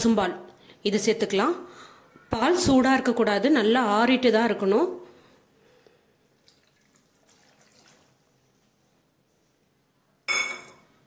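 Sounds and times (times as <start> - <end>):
milk pouring and dripping: 6.2 - 8.7.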